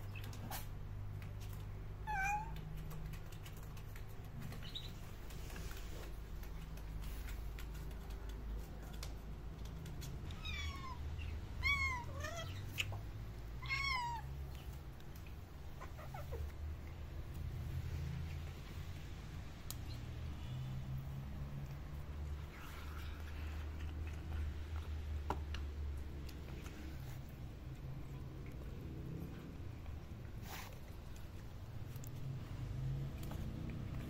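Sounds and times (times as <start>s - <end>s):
cat meowing: 2.0s - 2.6s, 10.3s - 12.9s, 13.6s - 14.4s.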